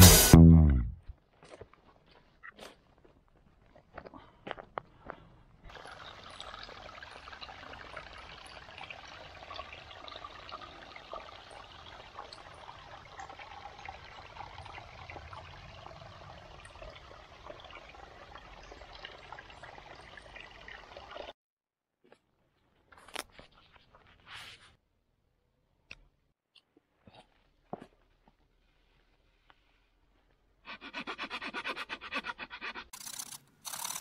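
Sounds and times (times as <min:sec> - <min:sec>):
water trickling: 0:05.7 - 0:21.4.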